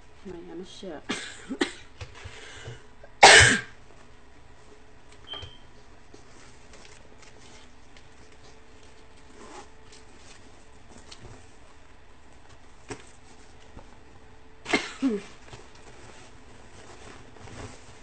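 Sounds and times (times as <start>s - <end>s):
loud cough: 1.1s - 1.9s, 3.2s - 3.7s, 14.7s - 15.2s.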